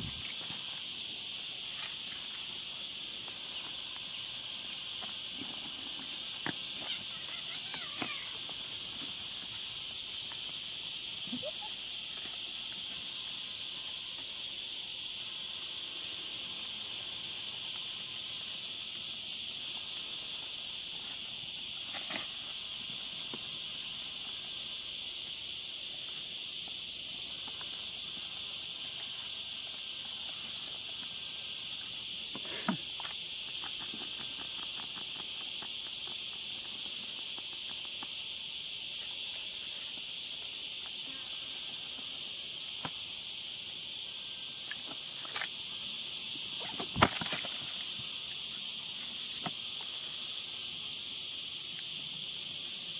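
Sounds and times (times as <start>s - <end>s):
insects droning: 0.0s - 52.9s.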